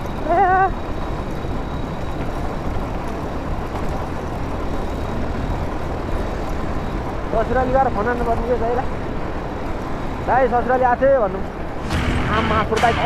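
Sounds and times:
motorcycle engine riding: 0.0 - 10.8, 11.6 - 13.0.

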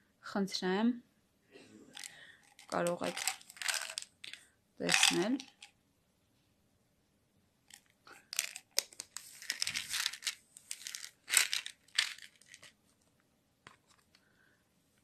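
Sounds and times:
packaging crinkling and rustling: 2.0 - 5.7, 8.3 - 12.8.

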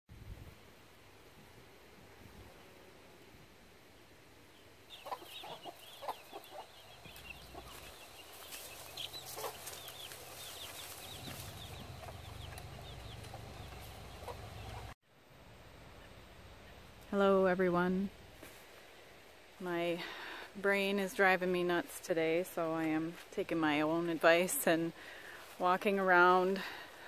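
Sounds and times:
chickens clucking: 4.9 - 15.0
low steady rumble: 11.0 - 18.4.

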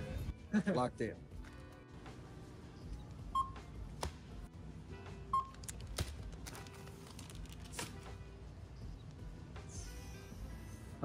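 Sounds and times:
background music: 0.0 - 11.0
barcode scanner beeps: 3.4 - 3.6.

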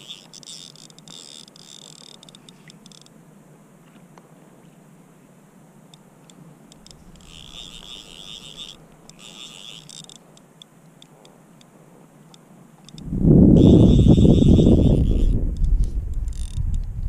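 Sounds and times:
fishing reel drag clicking: 0.0 - 3.1, 5.9 - 11.7, 12.8 - 17.0.

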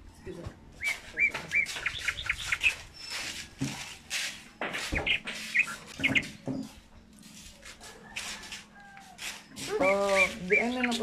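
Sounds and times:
bird chirps: 0.8 - 3.4, 4.6 - 7.1, 9.4 - 11.0.

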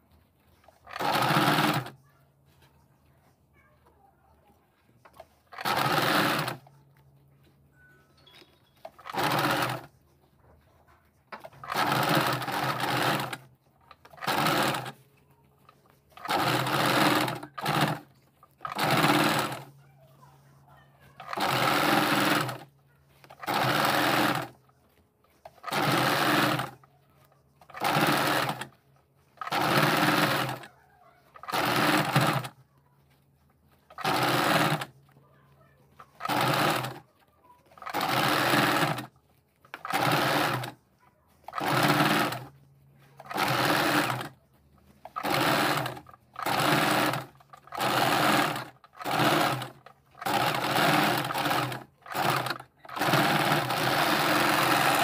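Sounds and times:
electric sewing machine stitching: 0.6 - 2.0, 5.0 - 6.7, 8.8 - 9.9, 11.3 - 15.0, 15.7 - 19.8, 21.0 - 24.7, 25.4 - 32.6, 33.7 - 40.8, 41.4 - 42.6, 43.2 - 55.0.

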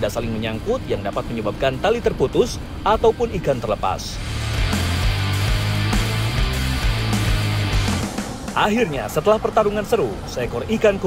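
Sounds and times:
rock music: 4.2 - 10.3.

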